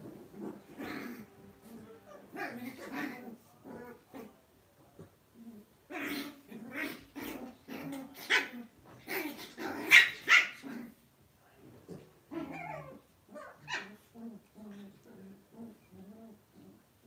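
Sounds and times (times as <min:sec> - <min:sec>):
dogs growling: 0:00.0 - 0:04.4, 0:05.0 - 0:11.0, 0:11.9 - 0:17.0
dogs barking: 0:09.8 - 0:10.6.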